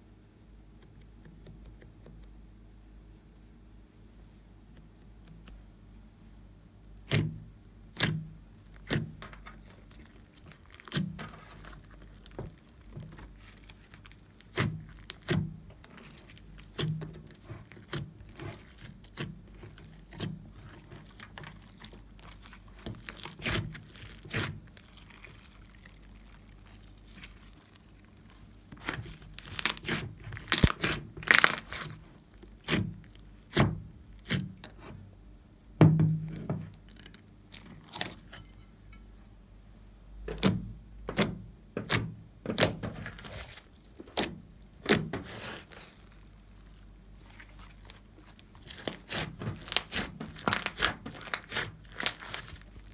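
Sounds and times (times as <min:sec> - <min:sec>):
slime sticky clicks and pops: 0:28.8 - 0:31.9, 0:48.7 - 0:52.6.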